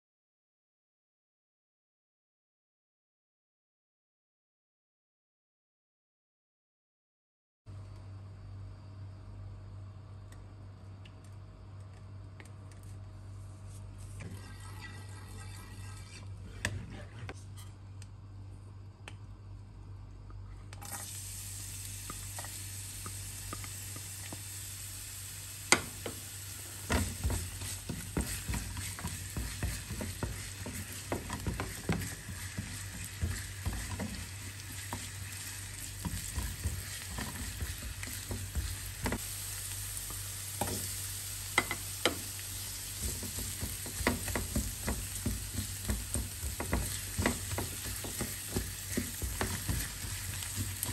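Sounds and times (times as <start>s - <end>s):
oil sizzling in frying pan: 14.0s - 16.3s, 20.8s - 50.9s
spatula scraping and tapping pan: 26.8s - 39.2s, 40.1s - 40.9s, 41.6s - 50.9s.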